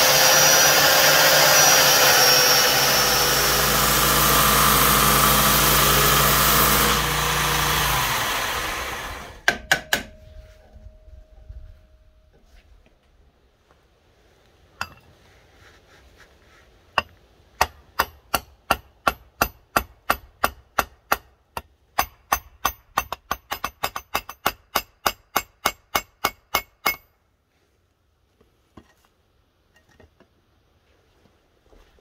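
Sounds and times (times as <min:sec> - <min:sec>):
hammer tapping metal pins: 0:09.4 - 0:10.5, 0:17.0 - 0:27.1.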